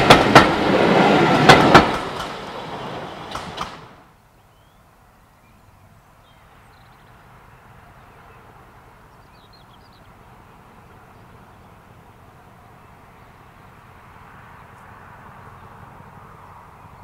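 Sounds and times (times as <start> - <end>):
faint bird chirps: 4.4 - 7.2.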